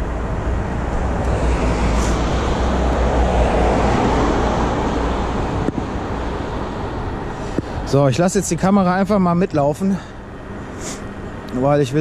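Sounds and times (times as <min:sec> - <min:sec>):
scooter road rumble: 0:00.0 - 0:12.0
wind on microphone: 0:00.3 - 0:07.2.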